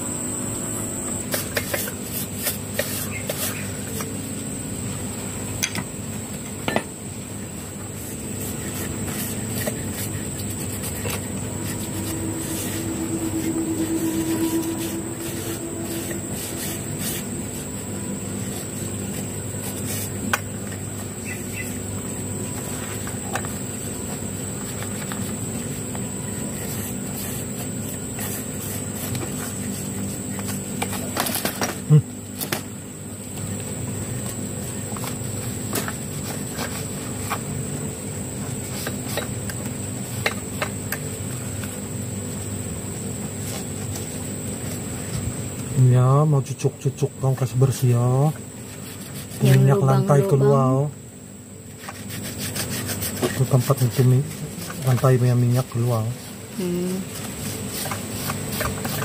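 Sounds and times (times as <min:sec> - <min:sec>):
low hum: 0:00.0 - 0:01.4, 0:07.7 - 0:27.4
high insect drone: 0:00.0 - 0:59.0.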